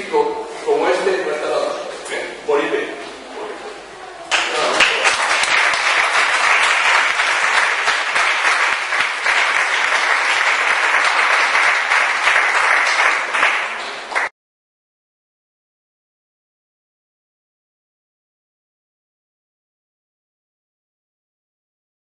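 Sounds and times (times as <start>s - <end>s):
audience applauding: 4.3s - 14.3s.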